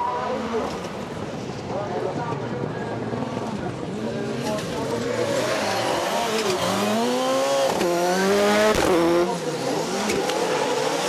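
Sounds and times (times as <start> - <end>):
car engine accelerating hard: 4.4 - 11.0.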